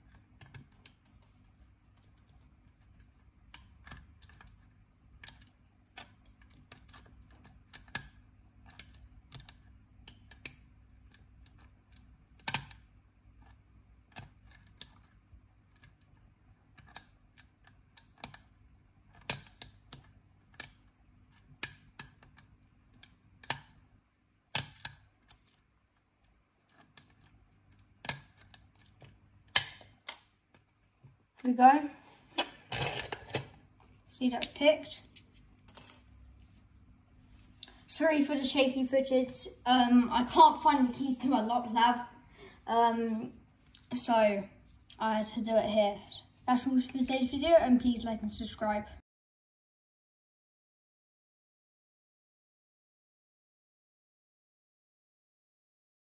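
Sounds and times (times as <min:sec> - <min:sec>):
lock picks clicking and scraping: 0:00.0 - 0:23.8, 0:24.5 - 0:30.8, 0:32.6 - 0:33.6.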